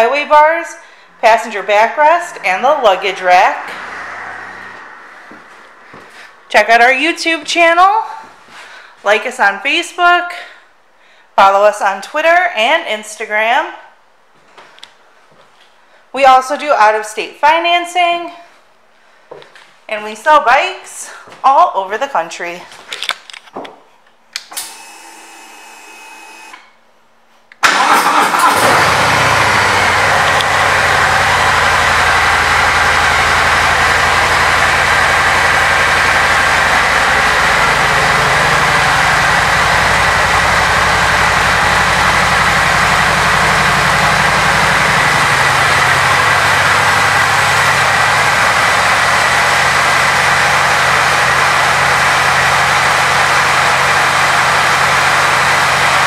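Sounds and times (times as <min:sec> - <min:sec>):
motorcycle engine starting and idling: 0:27.6 - 0:56.0.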